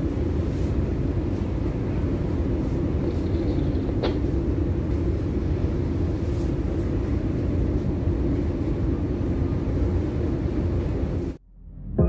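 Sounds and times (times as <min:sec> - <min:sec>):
ship machinery rumble and hum: 0:00.0 - 0:12.0.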